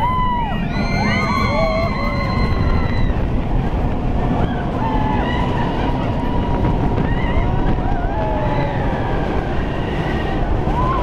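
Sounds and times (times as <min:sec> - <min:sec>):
high wavering squeals: 0:00.0 - 0:03.2
roller coaster rumbling on track: 0:00.0 - 0:11.0
wind rush on microphone: 0:00.0 - 0:11.0.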